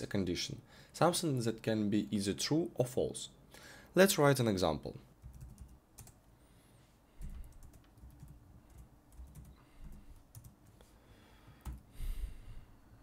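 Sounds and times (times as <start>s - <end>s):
computer keyboard typing: 5.2s - 6.2s, 7.2s - 10.8s, 11.6s - 11.8s.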